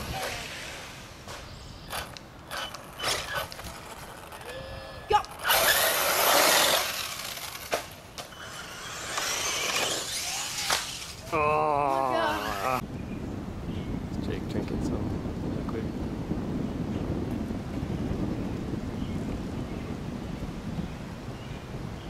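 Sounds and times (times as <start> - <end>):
radio-controlled cars on dirt: 0.0 - 12.8.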